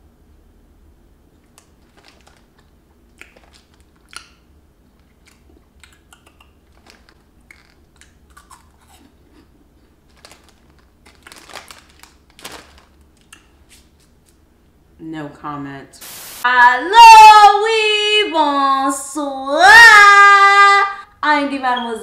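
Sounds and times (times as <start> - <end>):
plastic snack bag crinkling: 1.4 - 14.4
snack crunching while chewed: 1.4 - 14.4.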